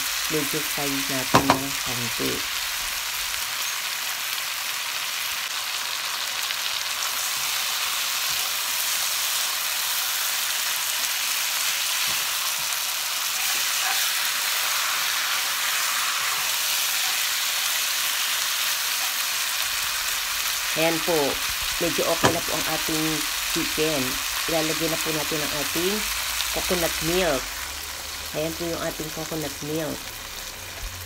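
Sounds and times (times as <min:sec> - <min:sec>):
chicken and onions sizzling in a pan: 0:00.0 - 0:31.0
spatula turning food in pan: 0:05.6 - 0:25.6.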